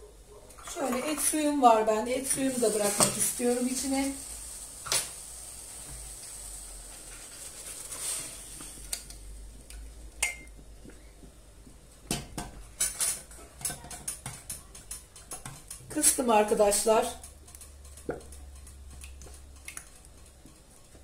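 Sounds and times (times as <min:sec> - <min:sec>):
metal pots clinking: 0:00.6 - 0:03.9, 0:10.2 - 0:10.5
light metal taps and clicks: 0:17.2 - 0:21.0.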